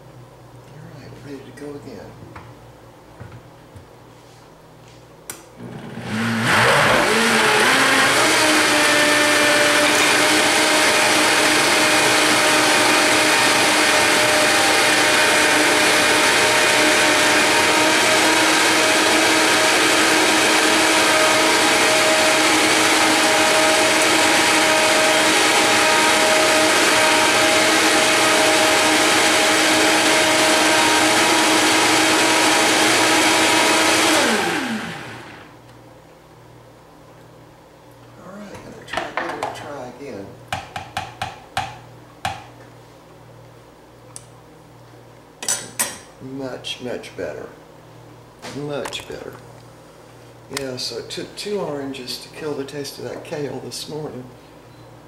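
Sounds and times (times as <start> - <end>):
blender motor whining: 5.6 - 35.5.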